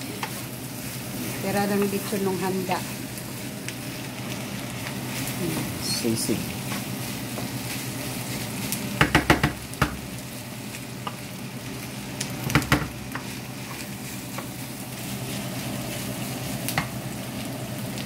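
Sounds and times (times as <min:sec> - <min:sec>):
pork sizzling in a frying pan: 0:00.0 - 0:18.0
wooden spoon clacking on pan: 0:09.0 - 0:10.0.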